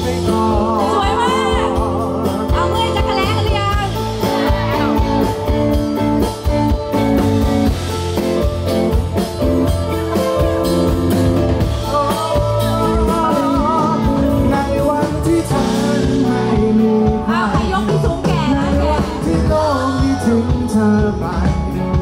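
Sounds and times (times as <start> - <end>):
person singing: 0.0 - 3.3, 11.6 - 22.0
rock band music: 0.0 - 22.0.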